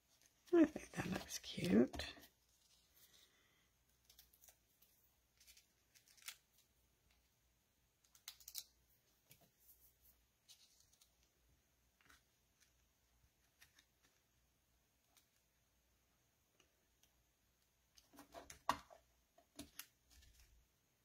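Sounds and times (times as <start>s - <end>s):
paper pieces rustling and clicking: 4.0s - 6.7s.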